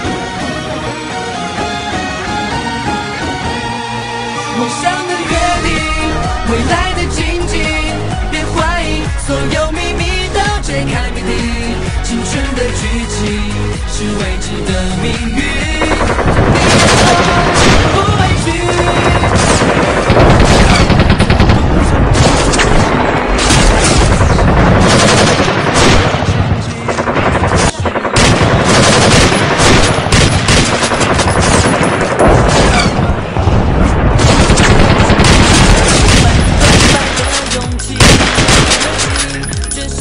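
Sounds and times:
background music: 0:00.0 - 0:40.0
toy machine-gun fire: 0:15.8 - 0:18.1.

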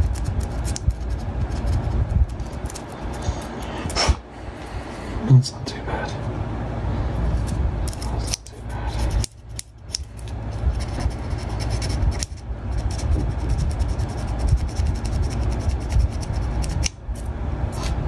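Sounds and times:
hand sanding plastic: 0:00.0 - 0:03.6, 0:07.3 - 0:17.0.

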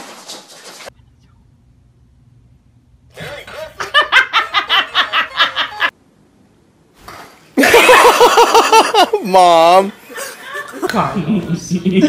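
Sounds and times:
high-pitched laughter: 0:03.2 - 0:05.9.

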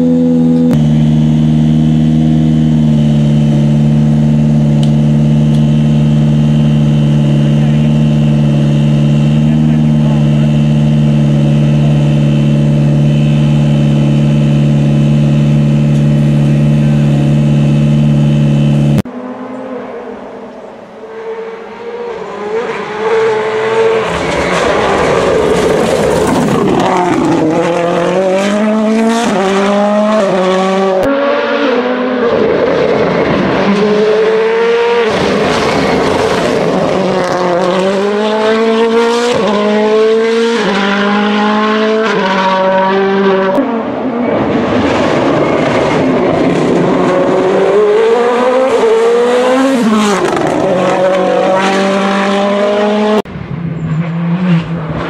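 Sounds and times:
rally car passing at full speed: 0:02.6 - 0:55.0
engine idling: 0:15.6 - 0:19.0.

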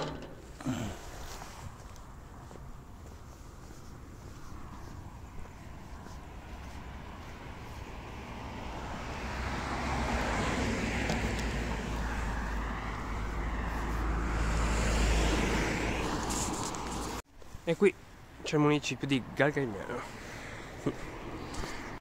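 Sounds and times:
vehicle driving past: 0:05.8 - 0:17.2.

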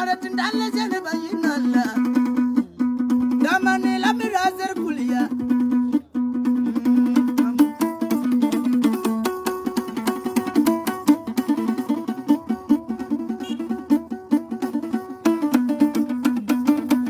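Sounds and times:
man singing: 0:00.0 - 0:02.6, 0:03.3 - 0:05.5, 0:06.7 - 0:08.4
plucked lute with drone: 0:00.0 - 0:17.0.

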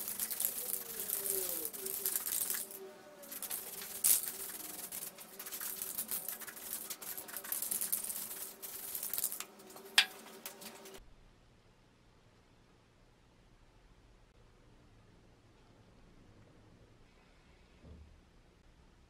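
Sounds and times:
spray paint can hissing: 0:00.0 - 0:11.0.

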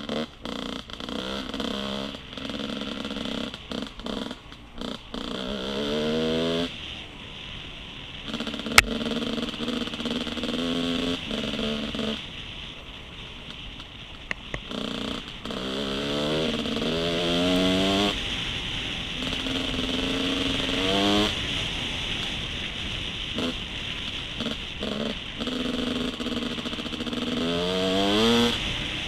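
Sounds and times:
dirt bike engine revving: 0:00.0 - 0:07.0, 0:07.6 - 0:12.6, 0:14.5 - 0:29.0
sharp crack: 0:08.2 - 0:29.0.

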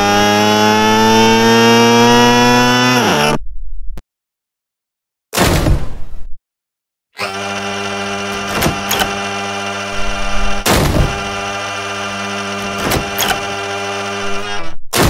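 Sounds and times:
low buzzing drone: 0:07.2 - 0:14.9.

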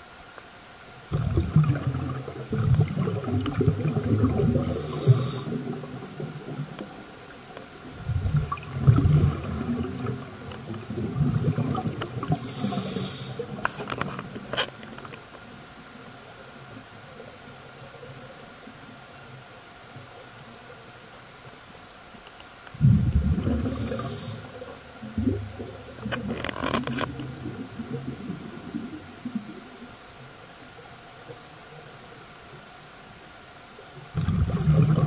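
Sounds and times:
bubbly underwater exhalations: 0:01.1 - 0:06.7, 0:08.0 - 0:13.6, 0:22.8 - 0:28.8, 0:34.1 - 0:35.0
regulator inhalation hiss: 0:04.6 - 0:05.6, 0:12.3 - 0:13.6, 0:23.6 - 0:24.8.

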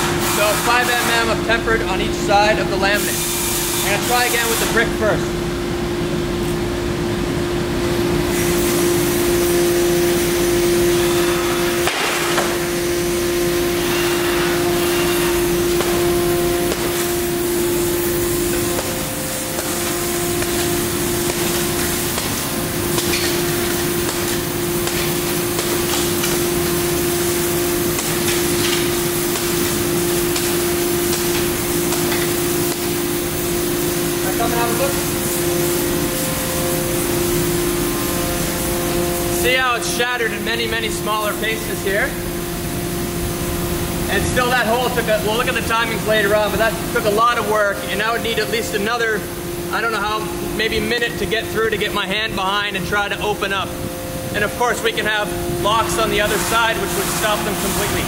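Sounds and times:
steady machine hum: 0:00.0 - 0:58.0
hammer blows on glass: 0:11.3 - 0:12.7, 0:13.9 - 0:17.2, 0:18.5 - 0:26.8, 0:27.9 - 0:33.0.

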